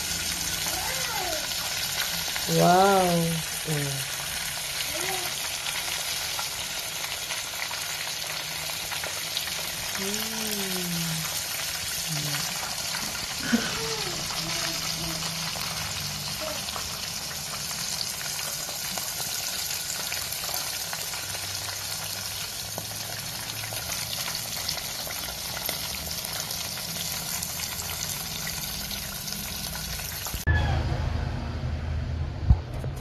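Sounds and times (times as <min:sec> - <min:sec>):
oil sizzling with crackles: 0:00.0 - 0:30.5
loud low rumble: 0:30.5 - 0:33.0.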